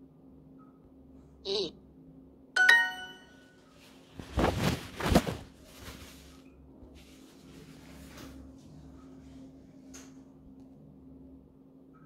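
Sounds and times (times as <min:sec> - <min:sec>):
bright ding chime: 0:02.6 - 0:03.5
loud rustling bursts: 0:04.1 - 0:06.3.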